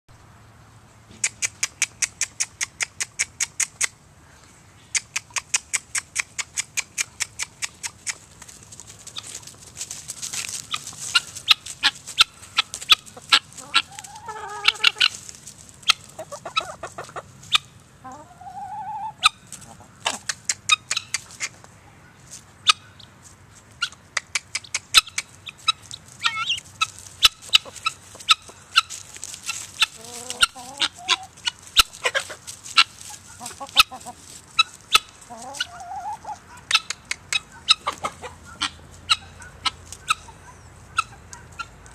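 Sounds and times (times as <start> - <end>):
chicken calls: 4.9 - 23.1, 23.8 - 41.9
guineafowl cackling: 9.0 - 23.1, 23.8 - 41.9.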